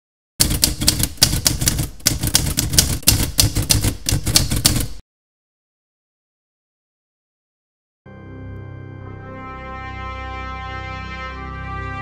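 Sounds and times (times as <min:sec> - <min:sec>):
typewriter keys clicking: 0:00.4 - 0:05.0.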